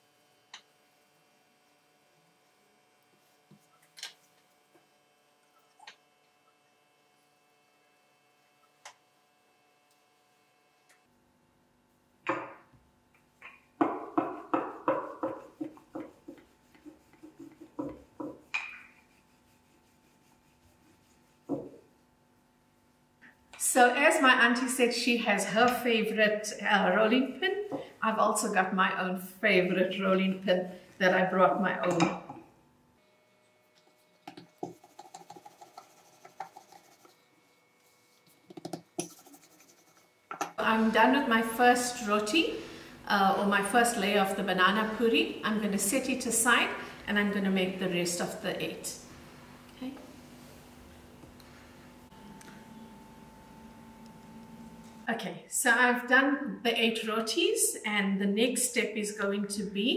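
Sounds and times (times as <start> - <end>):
rolling pin knocking on counter: 13.8 - 16.4, 17.2 - 18.8.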